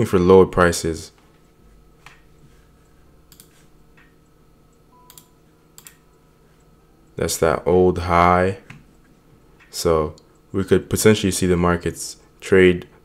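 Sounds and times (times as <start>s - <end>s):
room hum: 0.0s - 13.0s
computer mouse clicks: 2.8s - 4.2s, 5.1s - 6.1s.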